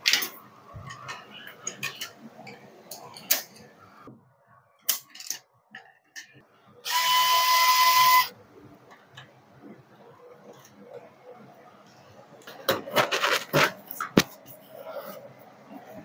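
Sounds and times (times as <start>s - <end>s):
clicks and knocks of parts: 4.9s - 6.4s.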